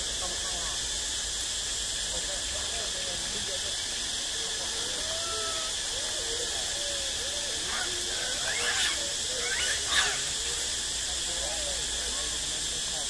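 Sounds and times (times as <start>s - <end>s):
steady high hiss: 0.0s - 13.0s
monkey low wavering calls: 4.1s - 12.4s
monkey squeals: 4.6s - 10.7s.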